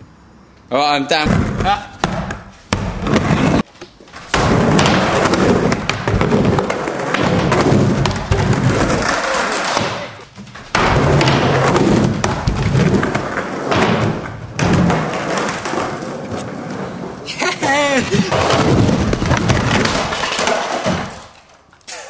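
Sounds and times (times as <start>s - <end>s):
skateboard wheels rolling and clattering: 3.0s - 17.2s, 18.2s - 21.7s
skateboard thuds on ramp: 4.2s - 16.0s.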